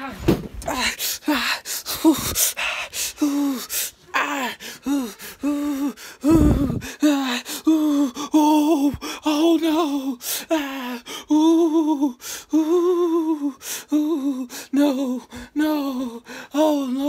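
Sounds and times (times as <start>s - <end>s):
sharp gasping breaths: 0.6s - 9.2s, 12.1s - 12.7s, 13.4s - 17.0s.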